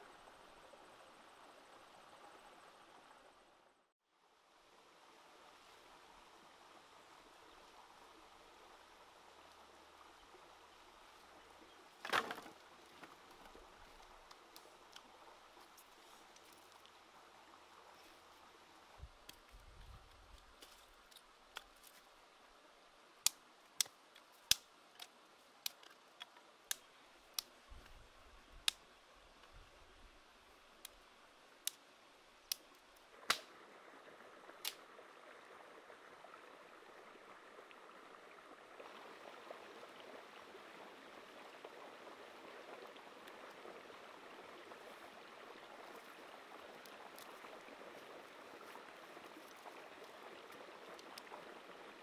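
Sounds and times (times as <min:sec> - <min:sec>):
faint steady hiss: 0:00.0 - 0:52.0
campfire wood popping: 0:23.2 - 0:27.5, 0:32.5 - 0:33.5.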